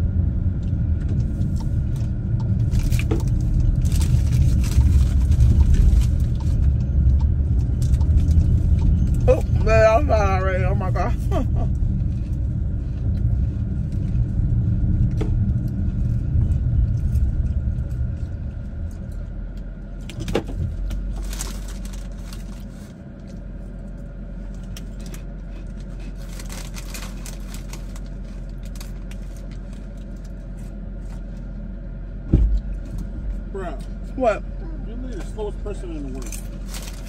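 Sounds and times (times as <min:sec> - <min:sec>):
car road rumble: 0:00.0 - 0:37.0
snack bag crinkling: 0:24.6 - 0:30.3.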